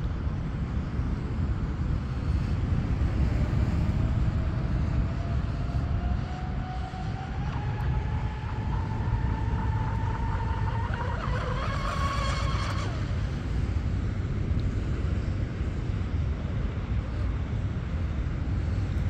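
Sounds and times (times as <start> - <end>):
wind rumble on microphone: 0.0 - 19.0
electric boat motors whining: 2.2 - 14.0.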